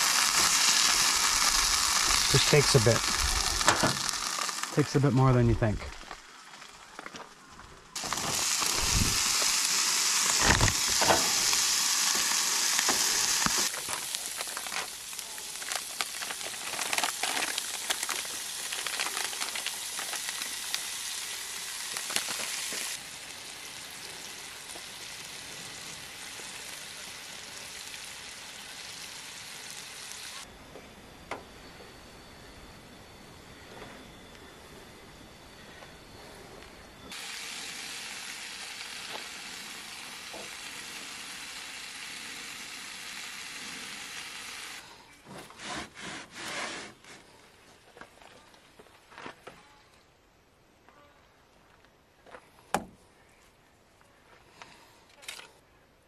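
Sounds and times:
food sizzling and crackling in a pan: 0.0s - 4.8s, 8.0s - 30.5s, 37.1s - 44.8s.

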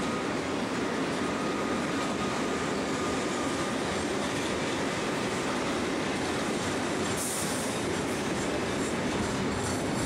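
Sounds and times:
train wheels on rails: 0.0s - 10.0s.

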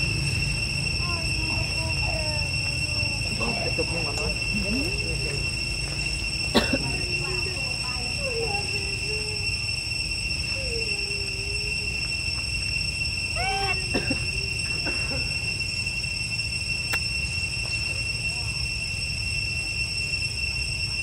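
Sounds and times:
high-pitched insect drone: 0.0s - 21.0s
macaque wavering cries: 10.5s - 12.0s, 13.4s - 15.4s.

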